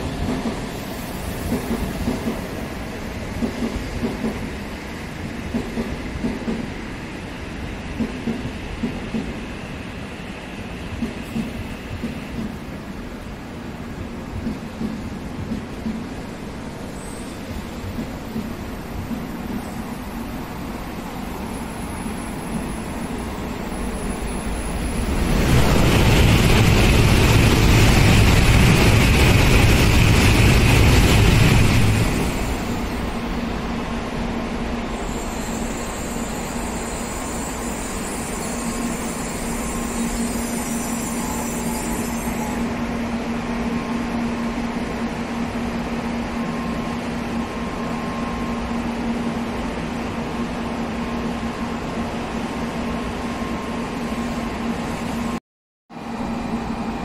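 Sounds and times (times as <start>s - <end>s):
train passing at speed: 0.0s - 57.0s.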